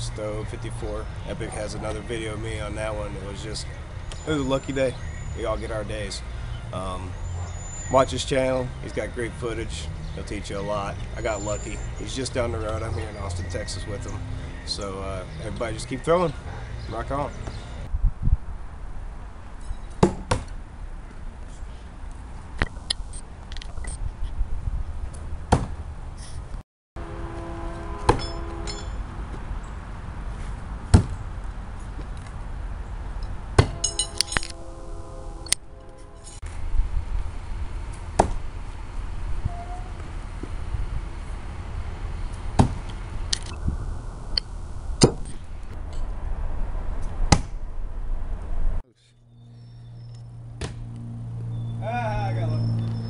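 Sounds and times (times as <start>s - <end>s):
tomahawks striking wooden board: 20.0s - 20.5s, 33.6s - 33.9s
steady low rumble: 31.3s - 51.7s.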